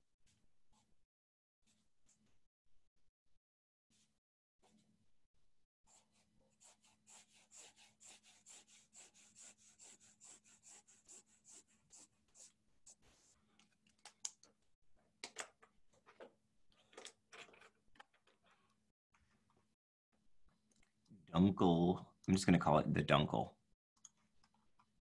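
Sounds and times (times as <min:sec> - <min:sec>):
marker scribbling on paper: 0:05.9 - 0:13.4.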